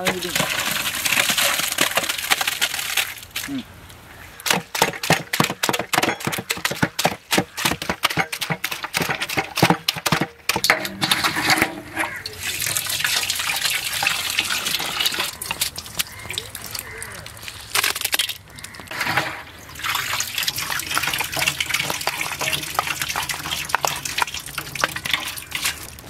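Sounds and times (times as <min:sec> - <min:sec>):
liquid sloshing: 0:00.0 - 0:03.5, 0:04.4 - 0:26.0
wet squelches and splashes: 0:11.4 - 0:26.0.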